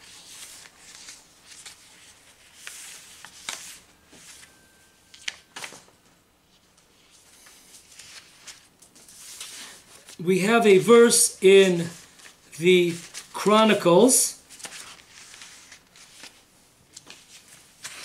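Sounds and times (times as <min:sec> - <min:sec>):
book pages rustling: 0:00.0 - 0:10.2, 0:11.8 - 0:13.6, 0:14.4 - 0:18.0.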